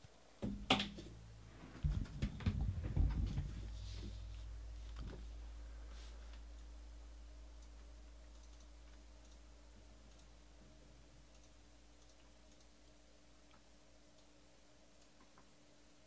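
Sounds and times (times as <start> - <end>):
low hum: 1.0 - 13.0
computer typing and clicking: 7.6 - 10.4, 11.2 - 12.8.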